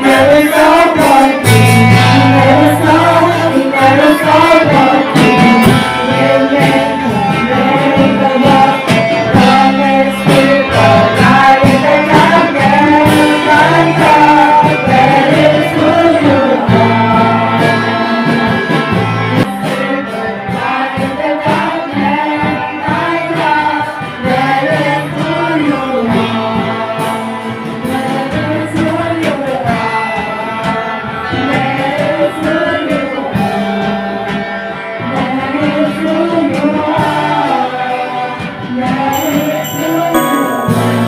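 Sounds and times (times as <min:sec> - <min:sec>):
group of people singing: 0:00.0 - 0:34.1, 0:34.9 - 0:41.0
guitar accompaniment: 0:00.0 - 0:41.0
high ringing tones: 0:39.2 - 0:41.0.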